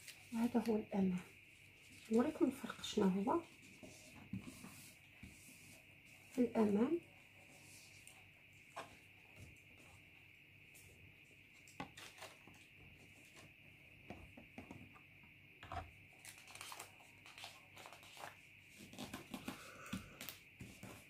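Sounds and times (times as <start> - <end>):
paper rustling and crinkling: 11.6 - 13.5, 16.2 - 21.0.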